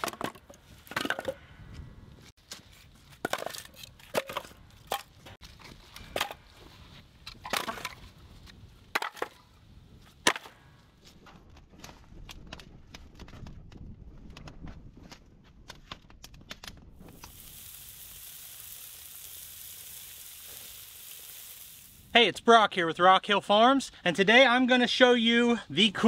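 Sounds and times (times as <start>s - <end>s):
firewood logs knocking together: 0.0s - 1.4s, 3.1s - 6.4s, 7.3s - 8.1s, 8.8s - 9.5s, 10.2s - 16.8s.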